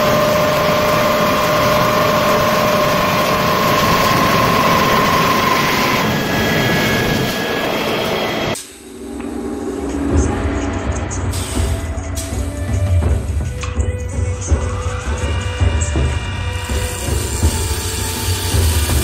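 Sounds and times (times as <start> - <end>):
wood-turning lathe whining: 0.0 - 8.6.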